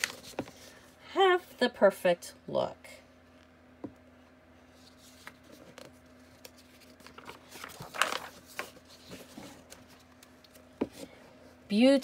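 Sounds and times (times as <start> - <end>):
book page turning: 0.0 - 0.6, 4.7 - 10.7.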